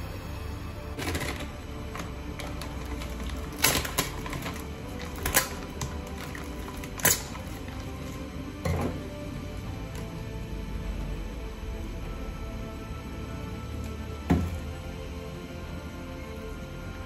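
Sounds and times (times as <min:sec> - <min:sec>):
knife slitting plastic film: 0:01.0 - 0:08.2.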